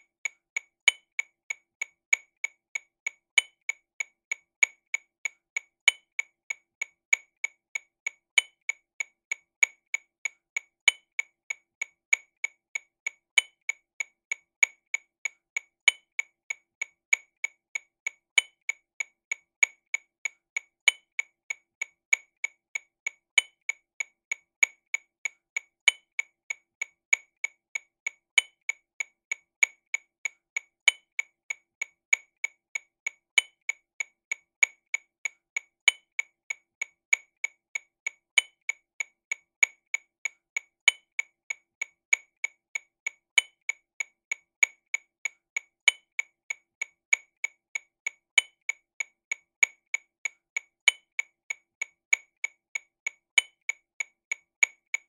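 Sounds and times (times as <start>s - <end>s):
metronome clicks: 40.8s - 41.2s, 45.8s - 46.2s, 50.8s - 51.2s.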